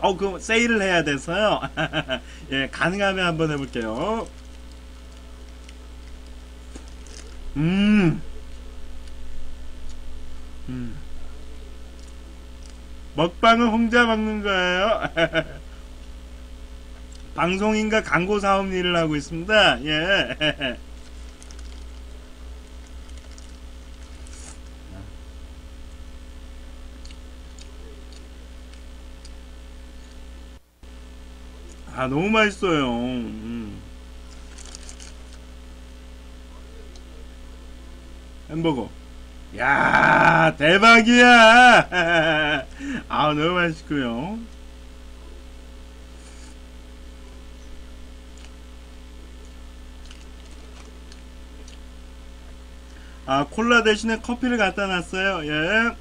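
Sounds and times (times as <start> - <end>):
electrical mains hum: 0.0 - 56.0
faint chewing: 20.9 - 24.8, 27.0 - 29.4, 48.3 - 48.7, 49.3 - 53.0
chewing clicks: 27.0 - 29.4, 48.3 - 48.6, 49.4 - 51.9.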